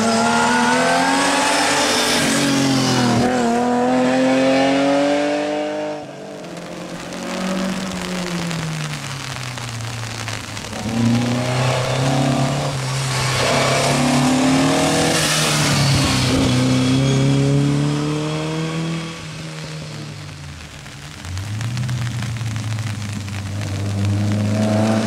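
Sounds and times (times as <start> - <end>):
rally car engine revving past: 23.8 - 25.0.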